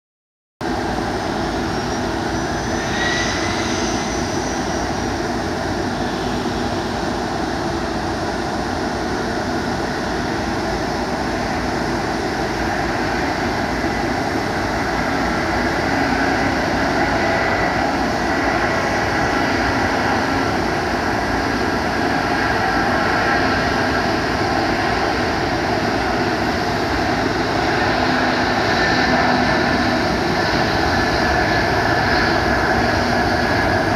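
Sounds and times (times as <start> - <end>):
jet engines running: 0.6 - 33.9
rising engine whine: 0.6 - 33.9.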